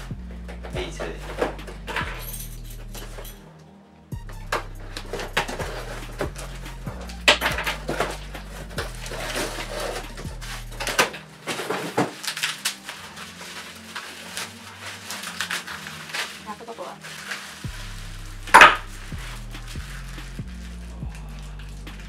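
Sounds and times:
background music with bass: 0.0s - 22.0s
plastic bag crinkling: 7.2s - 22.0s
cardboard box ripping: 7.7s - 20.9s.

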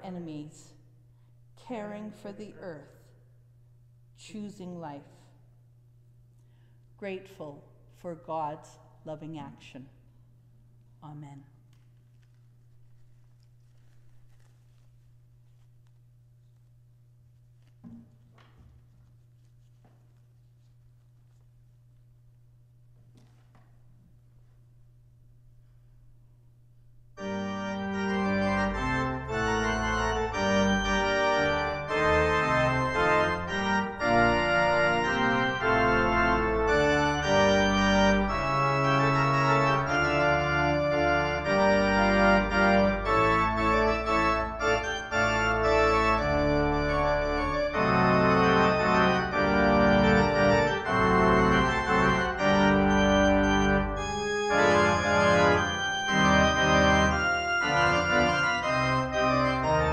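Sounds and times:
church organ playing held chords: 27.2s - 59.9s.

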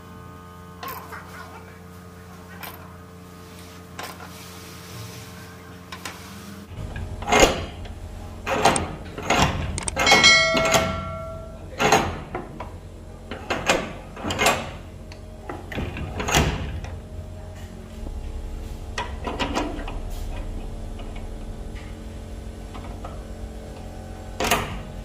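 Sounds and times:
brief metallic ringing: 10.0s - 11.6s.

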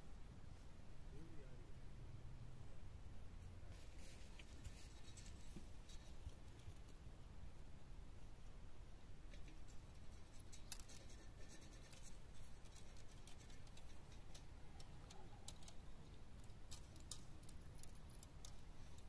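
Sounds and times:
faint small clicks and scratches: 3.7s - 7.1s, 9.2s - 19.0s.

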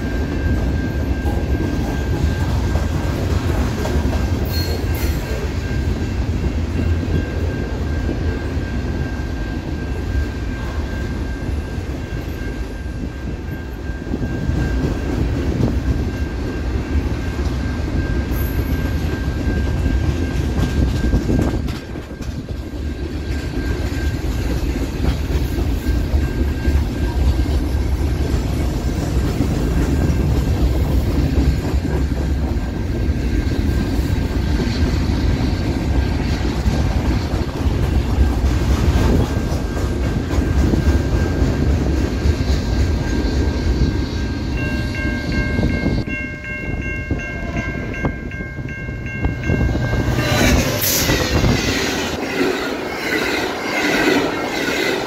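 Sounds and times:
high wheel squeal: 4.4s - 6.0s, 49.1s - 55.0s
locomotive horn: 50.0s - 55.0s.

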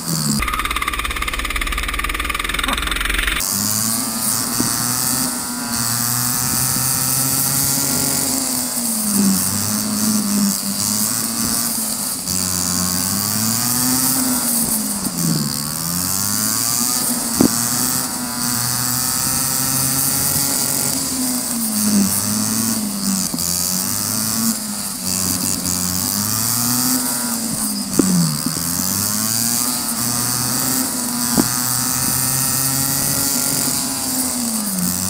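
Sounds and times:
go-kart engine running hard: 0.0s - 35.0s
sharp click: 0.4s - 3.5s.

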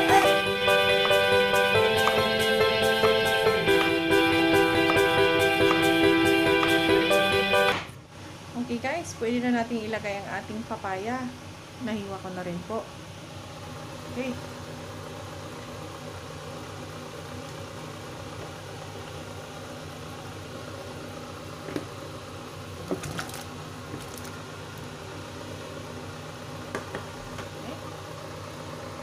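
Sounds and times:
soup boiling in pot: 14.6s - 29.0s.

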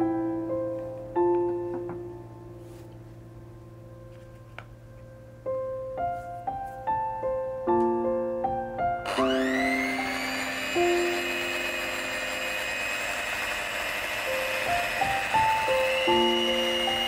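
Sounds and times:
soft piano music: 0.0s - 12.4s, 14.3s - 17.0s
electric hand mixer whine: 9.0s - 17.0s.

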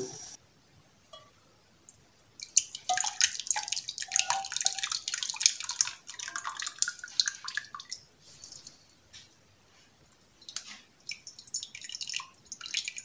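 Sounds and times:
syrup splashing and dripping: 2.4s - 8.8s, 10.4s - 13.0s.

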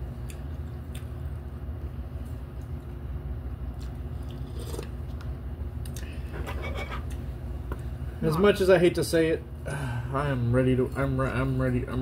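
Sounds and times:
people chewing noodles: 0.0s - 3.0s, 3.6s - 6.2s
steady low hum: 0.0s - 12.0s.

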